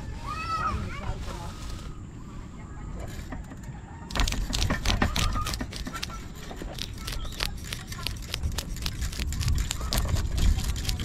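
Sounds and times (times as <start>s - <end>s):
knife scraping fish scales: 4.1s - 11.0s.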